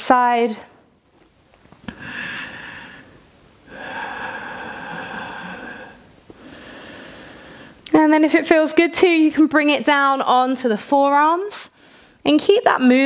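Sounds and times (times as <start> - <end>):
woman breathing slowly: 1.8 - 7.9, 11.7 - 12.2.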